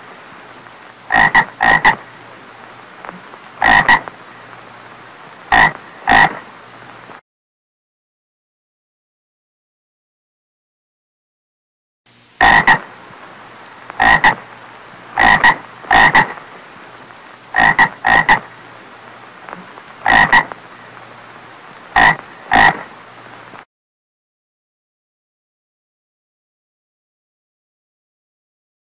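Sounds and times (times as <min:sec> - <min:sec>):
faint steady hum: 0:00.0 - 0:07.2, 0:12.1 - 0:23.6
toad croaking: 0:01.1 - 0:02.1, 0:03.0 - 0:04.2, 0:05.5 - 0:06.5, 0:12.4 - 0:12.9, 0:13.9 - 0:14.5, 0:15.1 - 0:16.4, 0:17.5 - 0:18.6, 0:19.5 - 0:20.6, 0:21.9 - 0:22.9.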